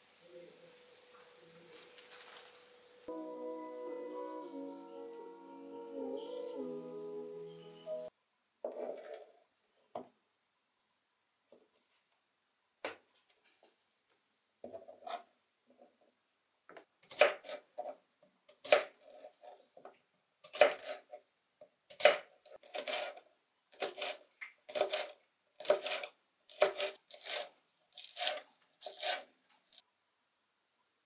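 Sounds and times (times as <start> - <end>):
knife cutting food: 21.9 - 23.2, 23.8 - 29.8.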